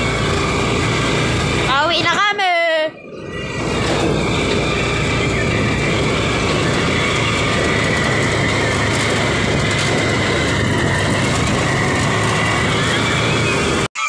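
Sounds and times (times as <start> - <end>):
motorcycle engine and road rumble: 0.0 - 13.9
wind noise: 3.4 - 13.9.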